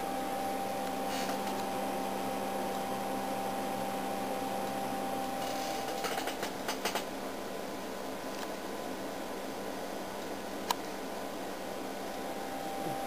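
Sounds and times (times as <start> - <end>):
high whine: 0.0 - 6.4, 11.2 - 13.0
test equipment humming: 0.0 - 13.0.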